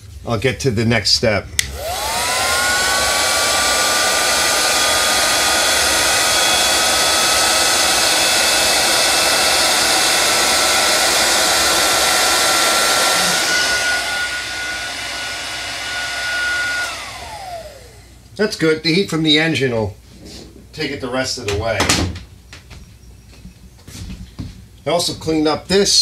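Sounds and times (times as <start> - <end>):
heat gun motor whine: 1.6 - 18.2
rush of hot air: 1.7 - 18.0.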